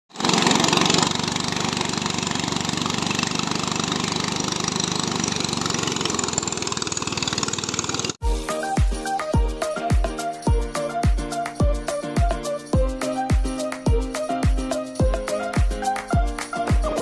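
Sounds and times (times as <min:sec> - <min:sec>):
rice thresher engine running: 0:00.1 - 0:08.2
music with steady beat: 0:08.2 - 0:17.0.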